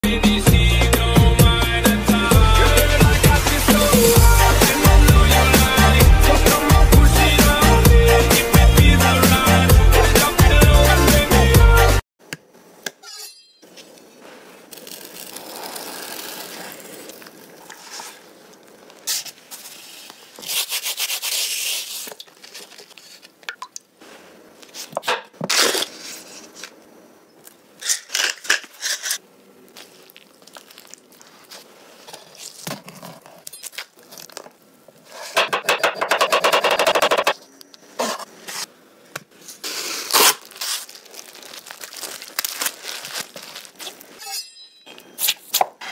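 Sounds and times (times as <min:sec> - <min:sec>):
cling film crinkling and tearing: 0:14.3 - 0:23.5, 0:24.6 - 0:26.8, 0:27.8 - 0:35.3, 0:39.4 - 0:44.2.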